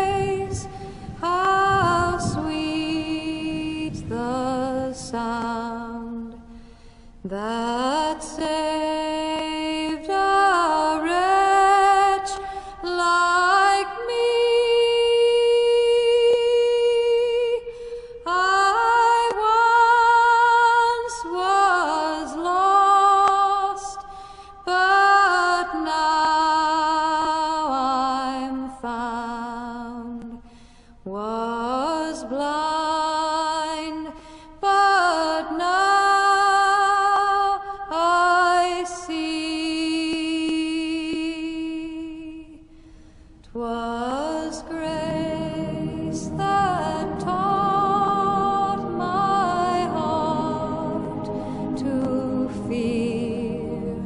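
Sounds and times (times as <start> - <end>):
person singing slow melody: 43.4 - 54.0.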